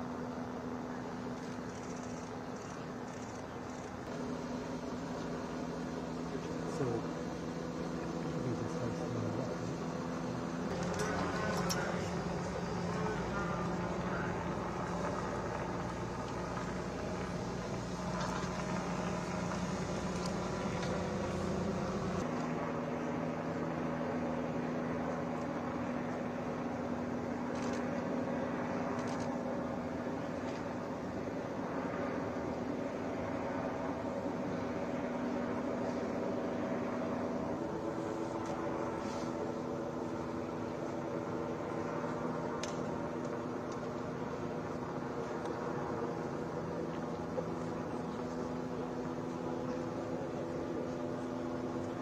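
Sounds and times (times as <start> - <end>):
vehicle engine idling: 0.0 - 22.3.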